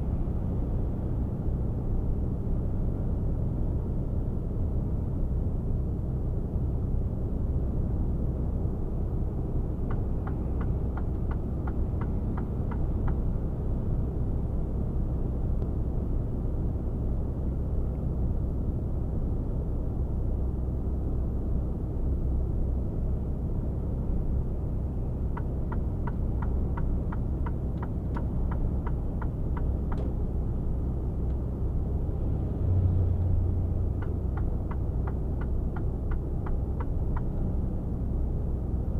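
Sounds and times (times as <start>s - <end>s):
truck engine and road noise: 0.0s - 38.9s
turn signal clicking: 25.4s - 30.2s, 34.0s - 37.3s.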